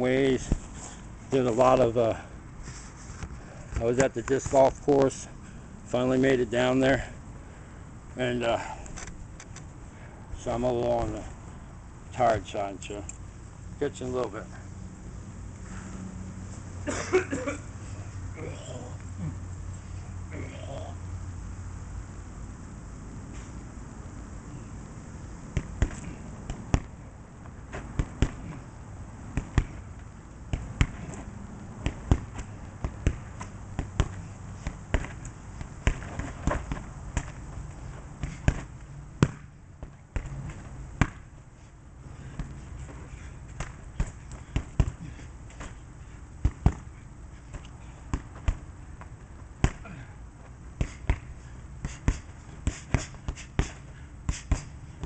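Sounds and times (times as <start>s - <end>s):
punches and kicks on heavy bag: 25.6s - 27.0s, 27.7s - 28.6s, 29.3s - 29.9s, 30.5s - 37.4s, 38.2s - 39.5s, 40.1s - 41.3s, 43.5s - 45.8s, 46.4s - 46.9s, 49.6s - 50.1s, 50.8s - 54.8s.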